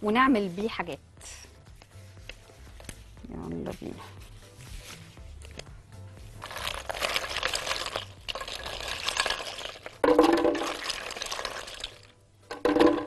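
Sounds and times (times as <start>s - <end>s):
ice clattering into blender jar: 6.4s - 13.0s.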